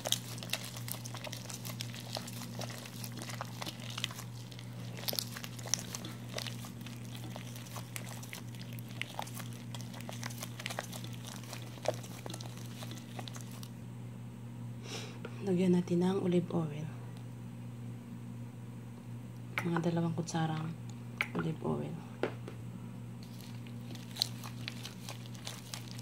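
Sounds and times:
hand squelching wet dough: 0.0 - 13.8, 23.2 - 26.0
steady low hum: 0.0 - 26.0.

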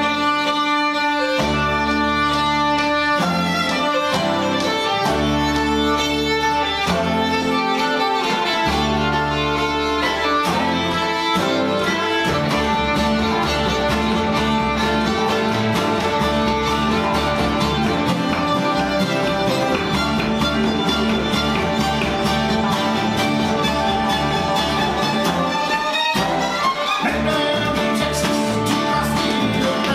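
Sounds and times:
acoustic guitars: 0.0 - 29.9
banjo: 0.0 - 29.9
fiddle: 0.0 - 29.9
upright bass: 0.0 - 29.9.

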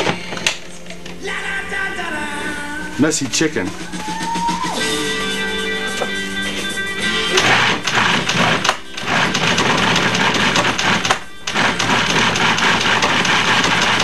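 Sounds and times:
food processor motor grinding meat: 7.3 - 14.0.

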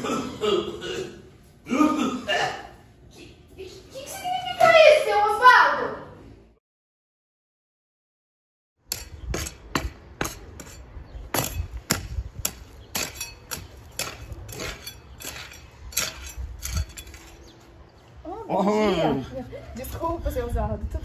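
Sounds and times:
digging tool striking sand and earth: 8.9 - 17.3.

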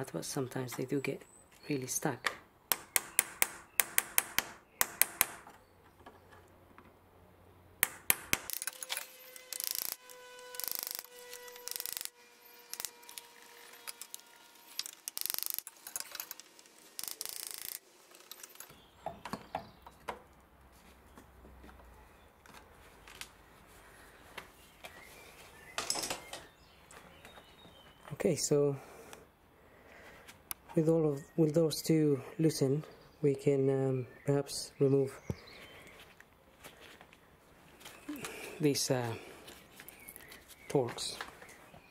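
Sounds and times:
sharp metal clicks: 14.8 - 18.7.

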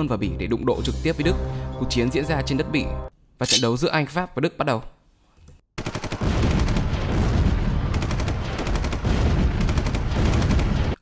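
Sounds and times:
rapid machine-gun and rifle fire: 5.8 - 11.0.

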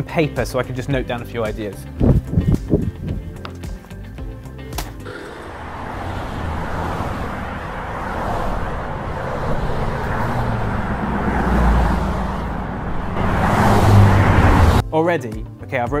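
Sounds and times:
road noise: 1.8 - 14.8
wind: 1.8 - 14.8
cars passing at speed: 5.0 - 14.8.

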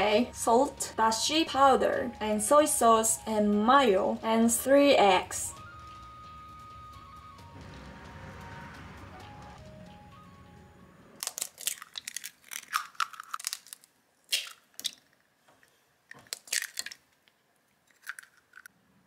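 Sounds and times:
background music: 0.0 - 11.5
eggs cracking into bowl: 11.2 - 15.2, 16.1 - 18.7.

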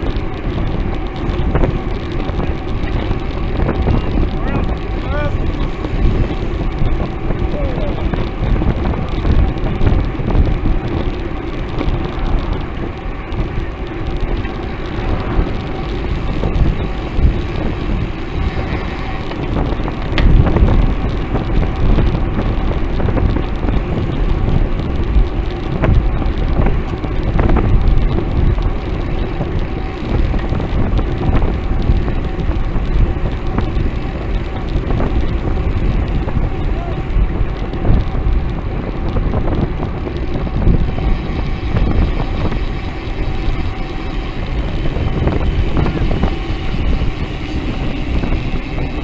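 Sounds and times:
tyre and road noise: 0.0 - 49.0
wind rumbling on microphone: 0.0 - 49.0.

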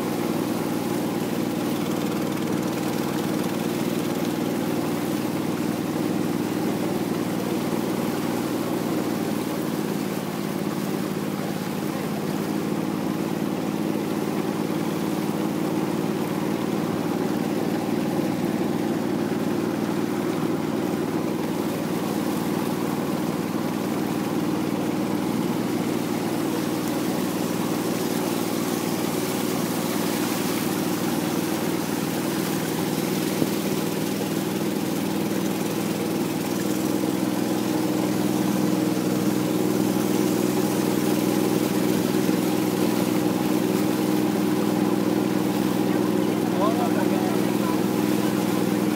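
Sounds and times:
boat engine running: 0.0 - 48.9.

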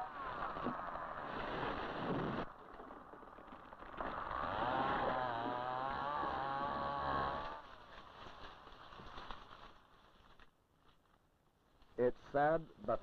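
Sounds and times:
chainsaw cutting: 3.7 - 8.8.

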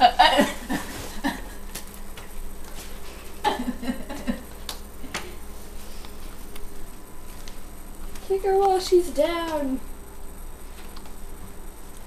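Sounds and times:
people shuffling on tile floor: 0.7 - 3.4, 5.5 - 8.4.

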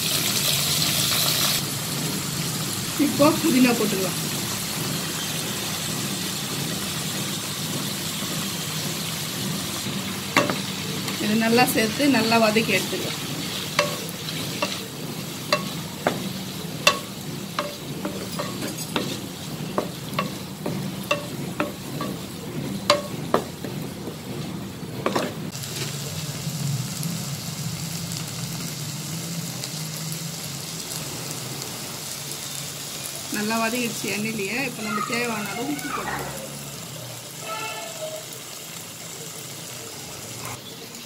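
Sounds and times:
leaves sizzling in oil: 0.0 - 41.0
wooden spatula scraping a pan: 11.9 - 25.5.

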